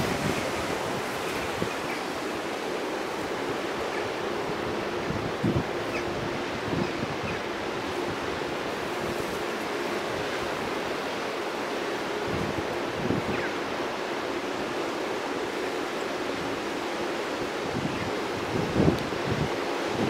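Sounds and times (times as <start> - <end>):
wind buffeting microphone: 0.0 - 11.0, 17.5 - 20.0.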